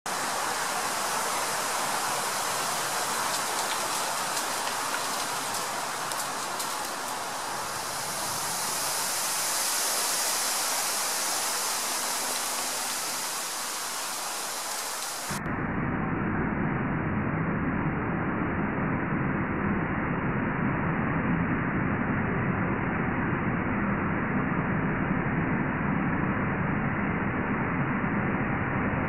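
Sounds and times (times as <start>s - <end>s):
wind rustling leaves: 0.0s - 16.1s.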